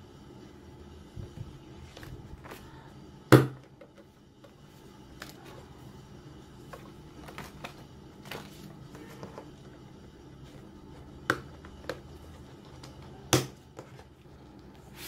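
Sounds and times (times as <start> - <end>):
pages and plastic sheets flipping: 1.8 - 2.8, 6.6 - 13.2.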